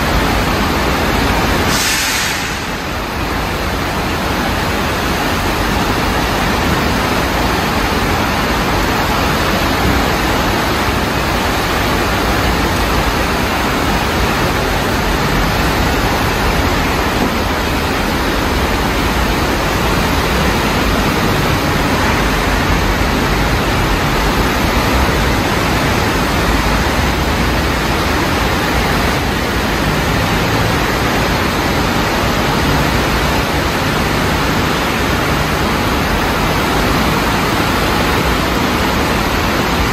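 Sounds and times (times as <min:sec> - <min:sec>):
floodwater rushing: 0:00.0 - 0:39.9
heavy rain: 0:00.0 - 0:39.9.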